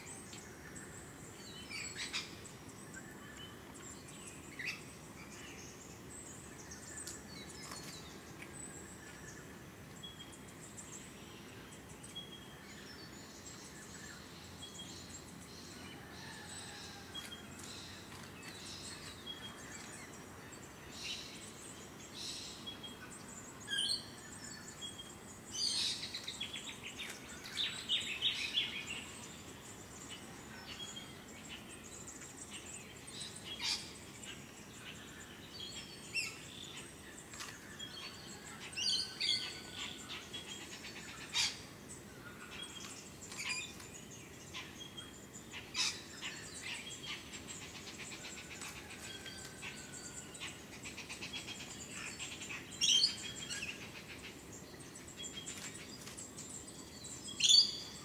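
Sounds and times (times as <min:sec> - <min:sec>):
faint steady hiss: 0:00.0 - 0:58.0
birds chirping and whistling: 0:35.6 - 0:58.0.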